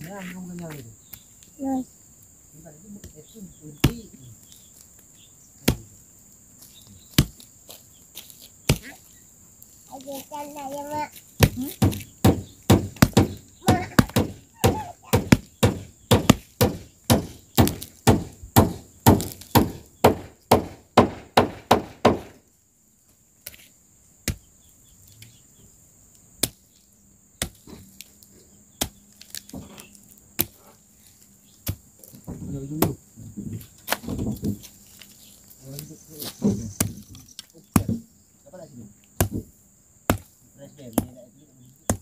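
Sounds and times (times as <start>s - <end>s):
machete chopping tree stump: 3.8s - 4.1s, 5.6s - 5.9s, 7.1s - 7.4s, 8.6s - 8.9s, 11.4s - 22.4s, 24.2s - 24.5s, 26.4s - 26.6s, 27.4s - 27.8s, 28.8s - 29.7s, 30.3s - 30.6s, 31.6s - 33.0s, 36.4s - 38.1s, 39.1s - 41.2s.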